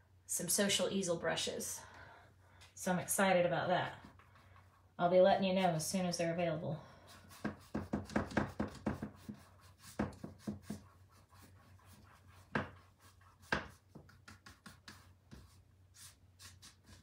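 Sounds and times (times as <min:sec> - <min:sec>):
paintbrush scrubbing on canvas: 0:07.0 - 0:17.0.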